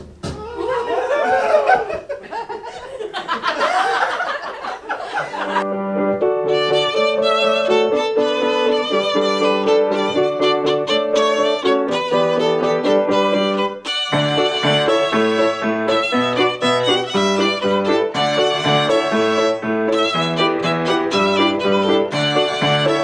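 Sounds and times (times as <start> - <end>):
fiddle playing lively tune: 5.4 - 23.0.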